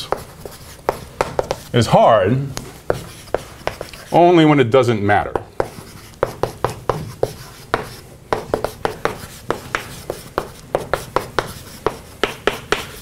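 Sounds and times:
chalk tapping and scratching: 0.0s - 2.0s, 2.6s - 4.4s, 5.2s - 13.0s.

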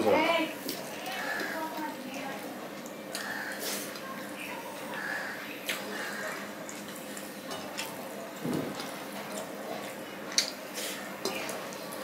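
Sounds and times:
wet chewing and mouth smacks: 5.6s - 8.0s, 8.7s - 11.8s.

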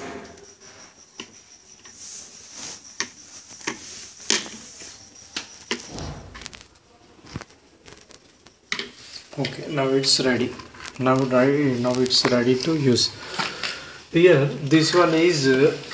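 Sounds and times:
small clicks and taps of handling: 8.4s - 9.6s.

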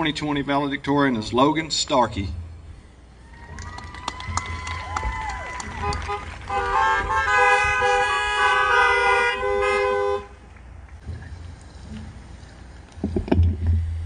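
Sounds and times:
car horns honking: 5.7s - 10.5s.

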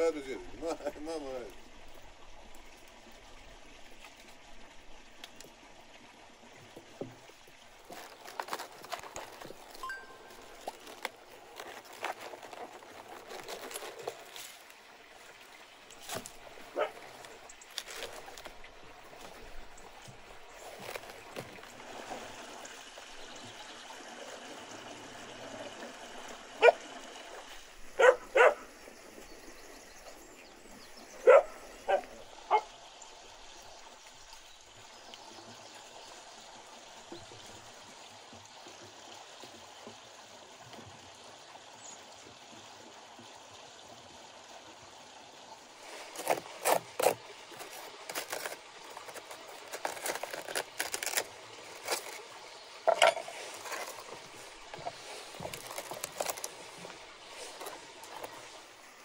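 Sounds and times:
dog barking: 16.8s - 17.0s, 26.6s - 26.8s, 28.0s - 28.7s, 31.2s - 32.7s
metal spoon scraping cabbage: 45.8s - 52.3s, 52.9s - 56.6s.

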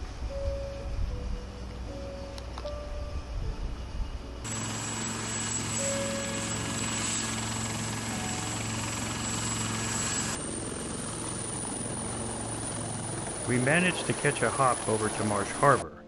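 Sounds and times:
turbine whine: 0.0s - 16.0s
helicopter rotor hum: 4.4s - 15.9s.

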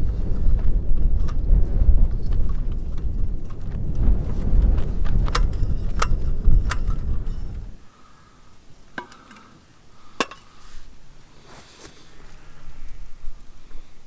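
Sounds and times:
low rumble: 0.0s - 7.8s.

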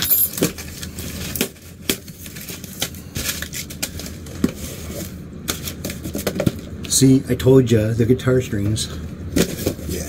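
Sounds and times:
cardboard and paper rustling: 0.2s - 6.6s.

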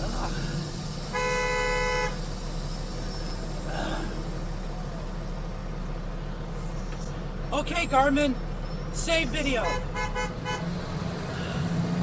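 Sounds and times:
truck engine idling: 0.0s - 12.0s
vehicle horn: 1.1s - 2.2s, 9.6s - 10.7s.

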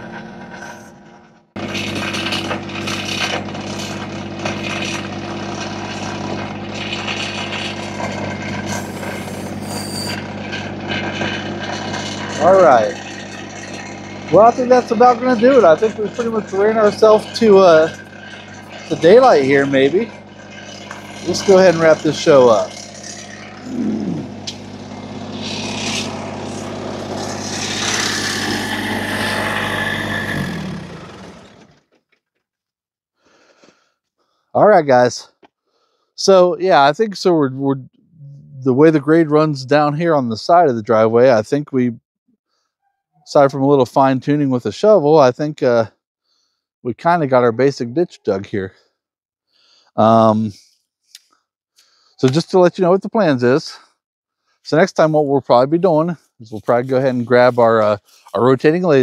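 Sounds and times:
diesel engine running: 0.0s - 32.0s, 56.5s - 59.0s
bucket scraping through soil: 1.6s - 23.8s, 24.4s - 31.5s, 56.5s - 58.6s.

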